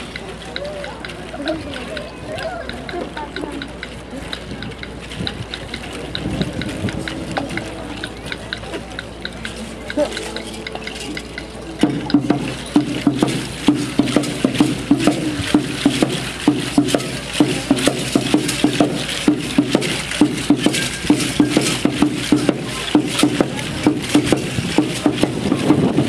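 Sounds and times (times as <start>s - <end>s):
shakers rattling: 0.0s - 26.0s
large drum beating: 10.0s - 26.0s.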